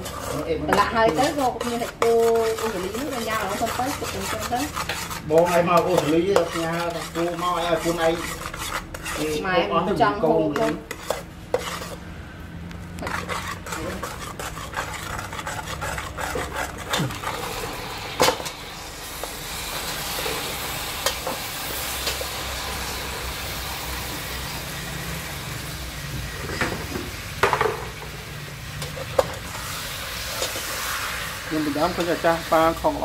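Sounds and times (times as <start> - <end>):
fish sizzling in sauce: 0.0 - 9.6, 13.0 - 33.0
ladle scraping a metal pot: 0.0 - 12.1, 13.0 - 22.6.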